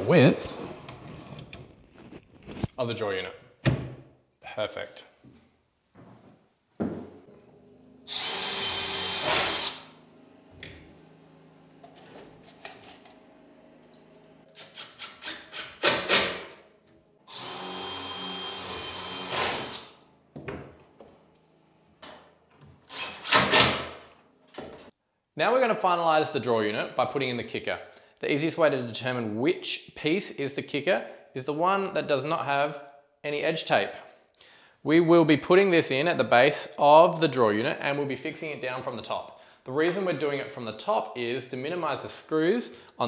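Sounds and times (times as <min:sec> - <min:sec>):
drill rattling driving screws: 0:08.1 - 0:09.8, 0:17.3 - 0:19.9
cordless drill motor: 0:08.1 - 0:09.9, 0:17.3 - 0:19.9.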